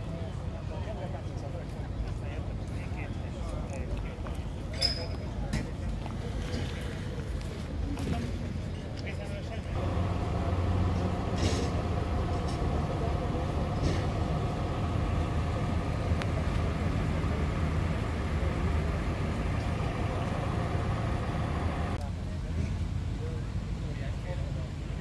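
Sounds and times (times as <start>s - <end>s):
car engine idling: 9.8s - 22.0s.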